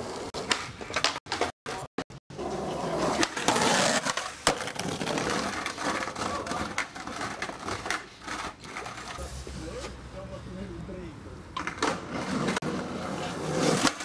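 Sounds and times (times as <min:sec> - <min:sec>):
skateboard wheels rolling on concrete: 0:00.0 - 0:14.0
skateboard clacks: 0:00.1 - 0:02.1, 0:02.9 - 0:09.2, 0:11.5 - 0:14.0.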